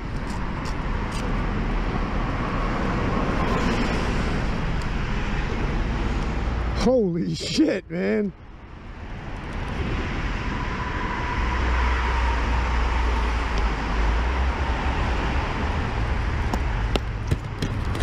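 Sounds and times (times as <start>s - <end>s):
wind and road noise: 0.0s - 18.0s.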